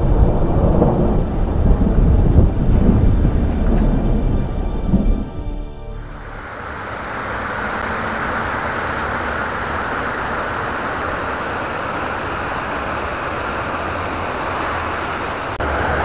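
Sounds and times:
water rushing over a weir: 0:06.0 - 0:16.0.

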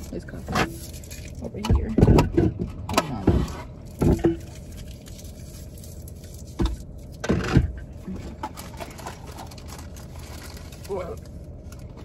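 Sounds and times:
steady low hum: 0:00.0 - 0:12.0
packaging rustling and crinkling: 0:03.8 - 0:07.2, 0:08.1 - 0:12.0.

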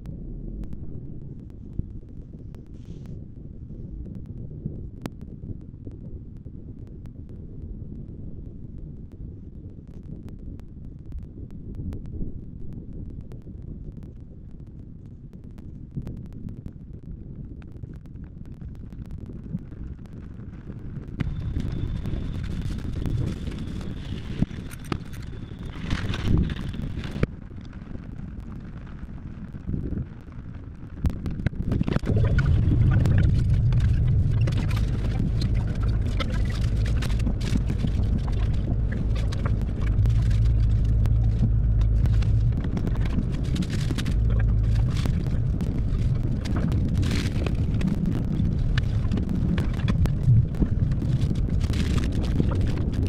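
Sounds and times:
rain ticking on windshield: 0:20.3 - 0:53.0
car driving on wet pavement: 0:32.2 - 0:46.7.

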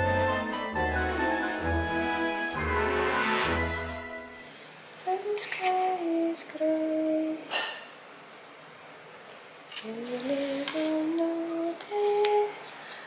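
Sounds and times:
woman humming a slow tune: 0:09.8 - 0:12.6.

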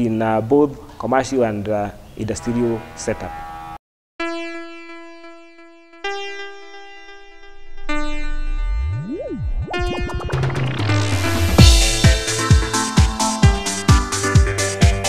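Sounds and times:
electronic synthesizer music: 0:05.9 - 0:15.0.

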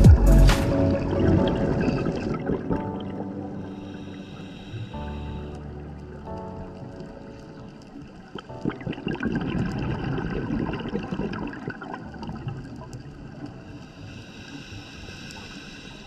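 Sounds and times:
faint background music: 0:00.0 - 0:16.0
underwater regulator bubbles: 0:08.2 - 0:13.8.

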